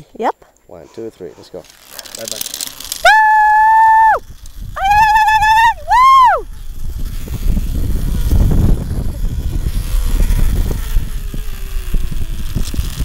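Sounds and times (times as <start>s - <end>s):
zipline trolley rumbling on cable: 1.4s - 13.0s
rattling clicks: 1.6s - 3.1s.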